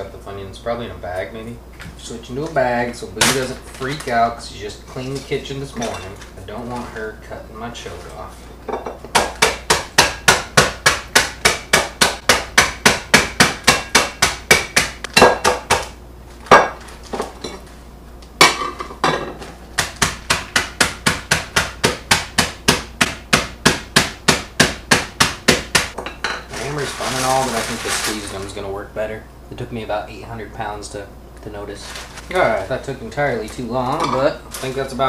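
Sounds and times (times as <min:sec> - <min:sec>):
mallet pounding plastic bag: 0:09.1 - 0:15.9, 0:19.8 - 0:28.6.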